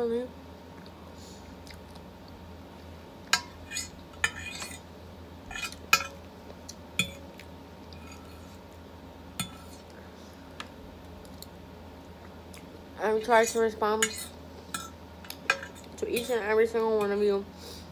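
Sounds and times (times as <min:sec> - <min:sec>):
fork scraping and clinking on plate: 0:03.4 - 0:04.8, 0:05.5 - 0:06.2.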